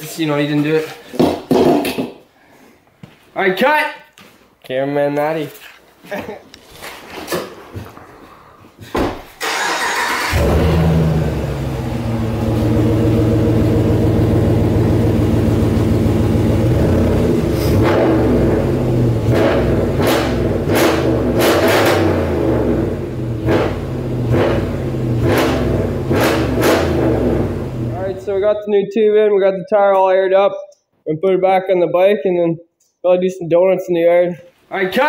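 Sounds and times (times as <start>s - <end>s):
engine revving: 9.4s - 28.2s
pickup truck engine running: 10.3s - 17.4s.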